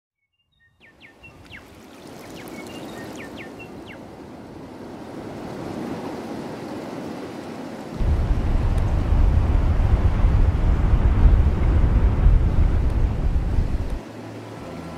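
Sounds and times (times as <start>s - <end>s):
rushing water: 0.9s - 14.9s
loud low rumble: 8.0s - 14.0s.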